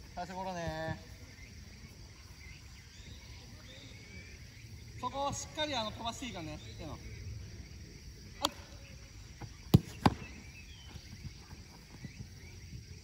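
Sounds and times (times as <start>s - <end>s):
football being kicked: 9.6s - 11.0s.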